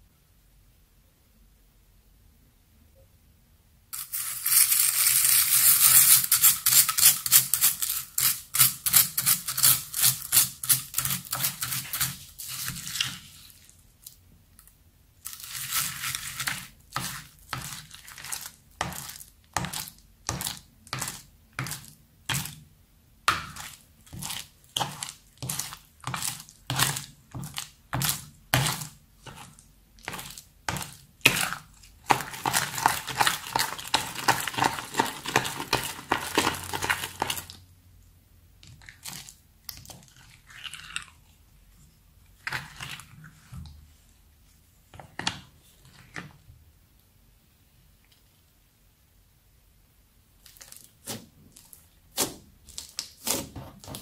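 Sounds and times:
beads crunching in stirred slime: 4.0s - 22.6s, 23.3s - 37.7s, 38.6s - 41.5s, 42.3s - 43.6s, 50.4s - 54.0s.

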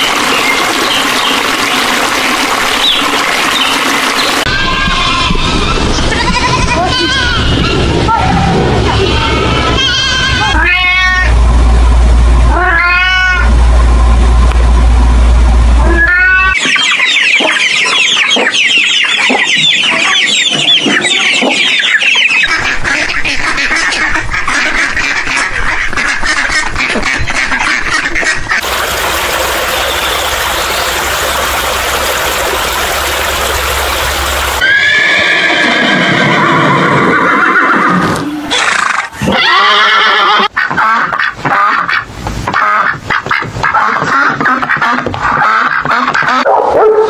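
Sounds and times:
horse whinnying: 34.6s - 40.5s.

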